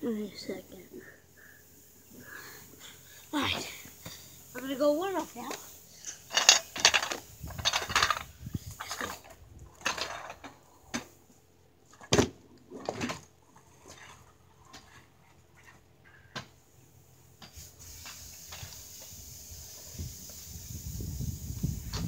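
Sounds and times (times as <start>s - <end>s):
scooter wheels rolling on pavement: 2.7s - 16.6s
scooter deck clattering: 6.3s - 11.1s.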